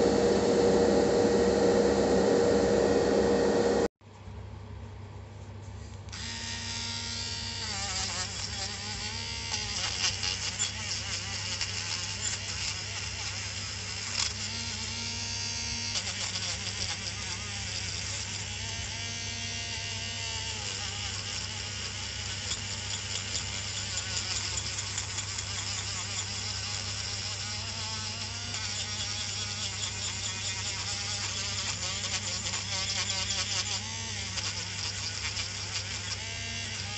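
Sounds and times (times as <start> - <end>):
rotary tool grinding metal: 20.1 - 36.9.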